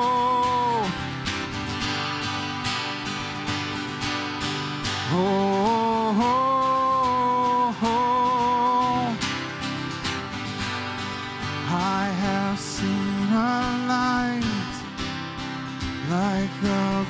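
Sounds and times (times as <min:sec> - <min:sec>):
man singing wordless note: 0:00.0 - 0:01.1, 0:05.0 - 0:09.2, 0:11.6 - 0:14.9, 0:16.0 - 0:17.0
acoustic guitars strumming: 0:00.0 - 0:17.0.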